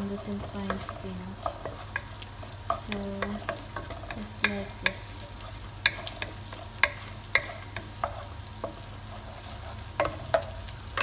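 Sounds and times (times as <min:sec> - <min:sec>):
garlic and butter sizzling: 0:00.0 - 0:11.0
wooden spoon knocking against pan: 0:00.7 - 0:05.0, 0:05.8 - 0:08.8.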